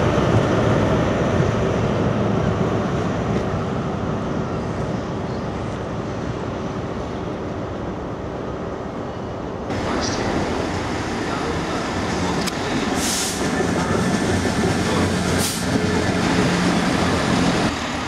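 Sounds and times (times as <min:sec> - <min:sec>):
diesel train pulling away: 0:08.4 - 0:18.0.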